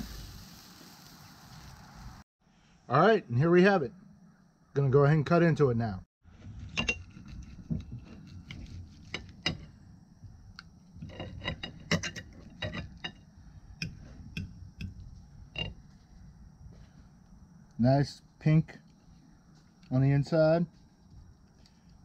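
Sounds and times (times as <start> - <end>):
cutlery scraping a plate: 11.0 - 13.2, 15.6 - 15.8.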